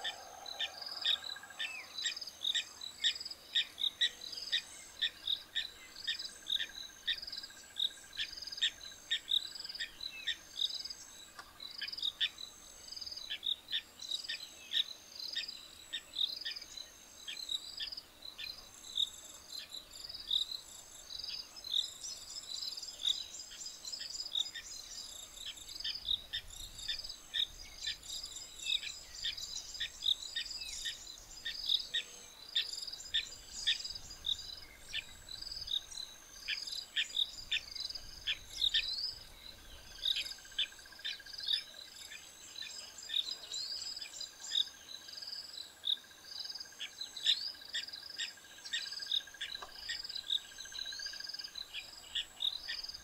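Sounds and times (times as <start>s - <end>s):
bird calls: 0.0s - 10.5s, 21.2s - 44.8s
insects chirping: 0.0s - 53.0s.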